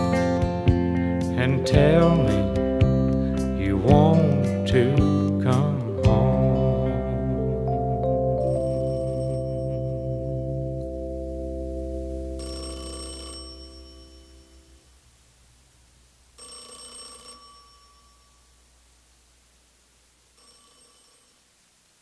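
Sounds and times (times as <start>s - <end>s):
song's final chord: 0.0s - 12.4s
telephone ringing: 8.0s - 14.9s, 16.4s - 18.6s, 20.3s - 21.6s.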